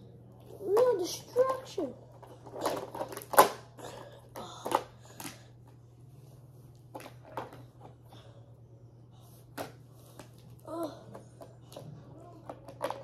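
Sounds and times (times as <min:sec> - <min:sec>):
plastic toys clattering: 0:00.6 - 0:05.4, 0:11.7 - 0:13.0.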